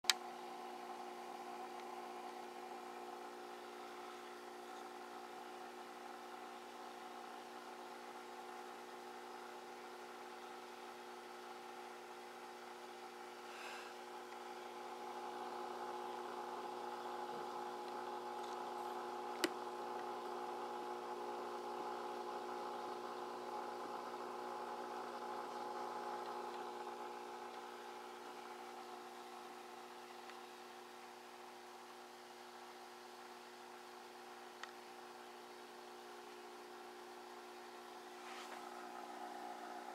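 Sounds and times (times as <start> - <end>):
mechanical hum with held tones: 0.1 - 39.9.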